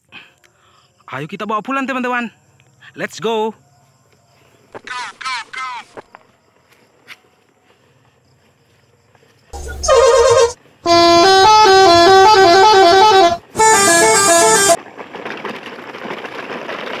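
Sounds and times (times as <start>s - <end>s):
musical vehicle horn blasts: 9.6s - 14.8s.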